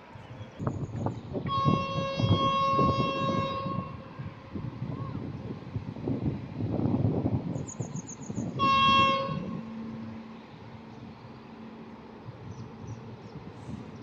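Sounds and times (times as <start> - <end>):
train rumbling: 0.0 - 14.0
electric locomotive horn blast: 1.4 - 4.3, 8.5 - 12.0.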